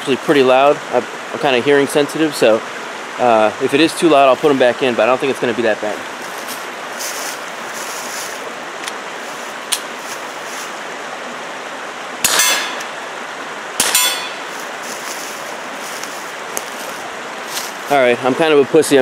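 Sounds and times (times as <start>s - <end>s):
steady rushing hiss: 0.0s - 19.0s
suppressed pistol shots: 12.2s - 12.9s, 13.8s - 14.4s.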